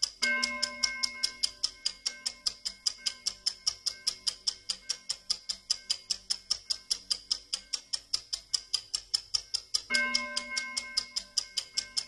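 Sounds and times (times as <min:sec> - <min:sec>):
clock ticking rapidly: 0:00.0 - 0:12.0
faint ringing tones: 0:09.9 - 0:12.0.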